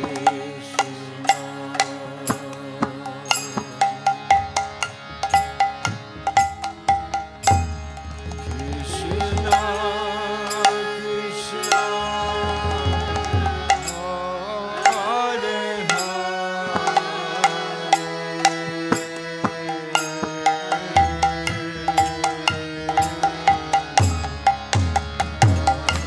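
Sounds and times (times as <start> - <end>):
hand cymbals clicking: 0.0 - 11.0
harmonium chords and melody: 0.0 - 26.0.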